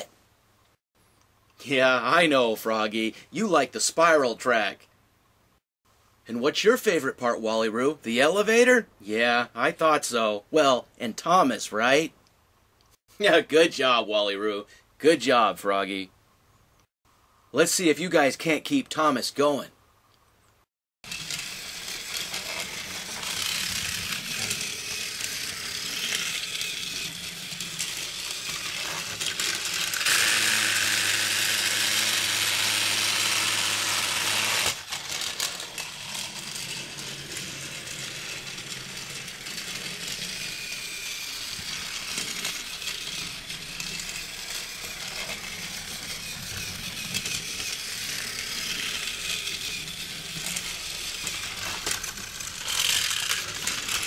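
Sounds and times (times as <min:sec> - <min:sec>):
toy train motor whirring: 0:21.0 - 0:54.0.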